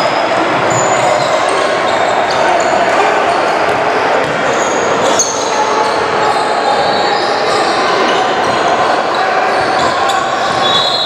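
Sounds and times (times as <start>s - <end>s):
player and spectator noise: 0.0s - 11.0s
basketball bouncing on court: 3.7s - 4.5s.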